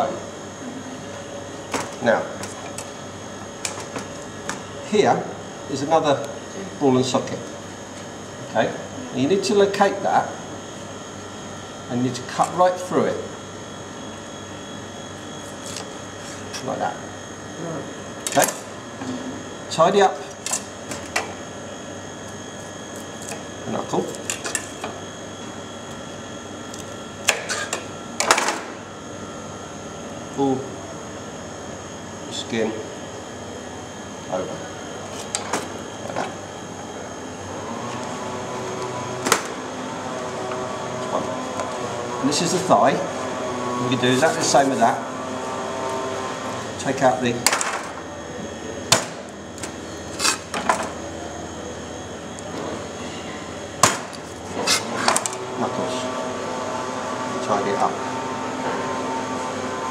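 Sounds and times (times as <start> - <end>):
steady background hum: 0.0 - 59.9
knife scraping cuts: 50.1 - 50.6, 54.2 - 55.2.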